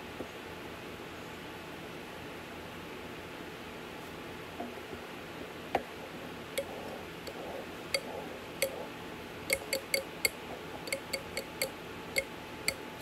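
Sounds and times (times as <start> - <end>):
metal spoon clinking glass bowl: 9.5 - 12.8.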